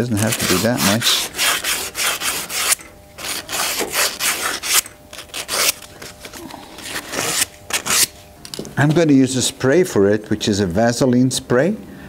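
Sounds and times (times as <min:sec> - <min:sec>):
sandpaper rubbing metal: 0:00.0 - 0:05.8, 0:06.9 - 0:08.1.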